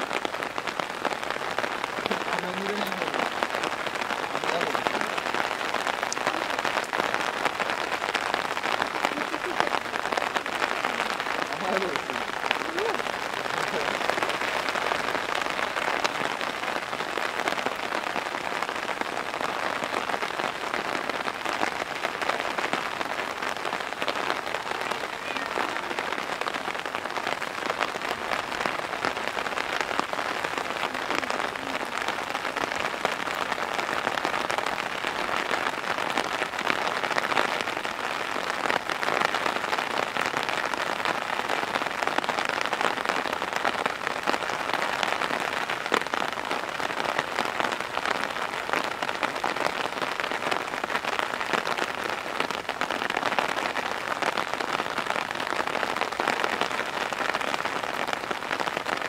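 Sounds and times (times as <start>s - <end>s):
heavy rain hiss: 0.0s - 59.0s
raindrop ticks: 1.6s - 16.9s.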